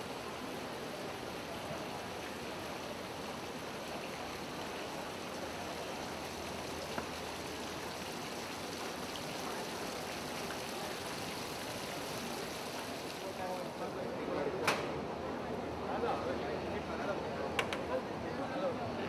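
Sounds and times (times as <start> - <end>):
hubbub of exhibition hall crowd: 12.8 - 19.0.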